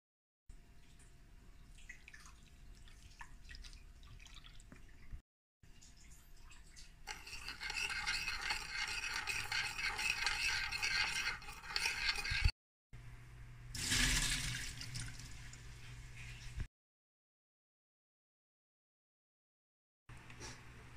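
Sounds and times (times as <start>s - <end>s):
spoon scraping ceramic bowl: 7.1s - 12.5s
water splashing into metal bowl: 13.8s - 15.6s.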